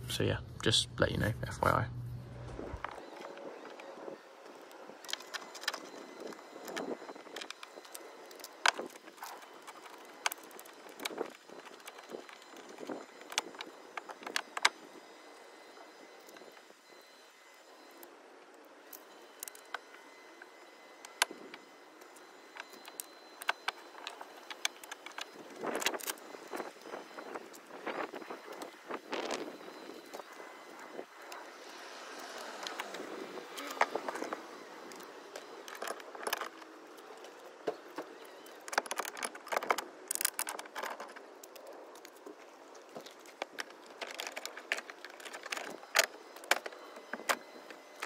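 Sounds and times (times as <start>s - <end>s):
metal parts clinking and rattling: 33.7s - 48.0s.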